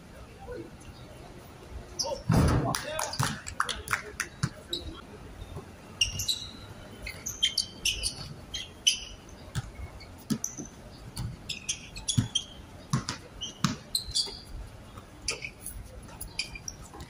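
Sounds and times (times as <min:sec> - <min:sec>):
basketball shoes squeaking: 0:04.4 - 0:17.0
basketball bouncing: 0:09.5 - 0:14.5.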